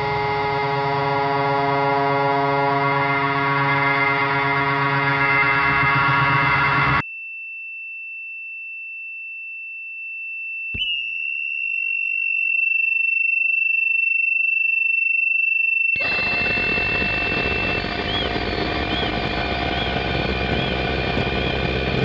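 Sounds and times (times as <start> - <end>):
fuller electronic tone: 0.0 - 7.0, 16.0 - 22.0
dense wash of noise: 16.0 - 22.0
high pure electronic tone: 16.0 - 22.0.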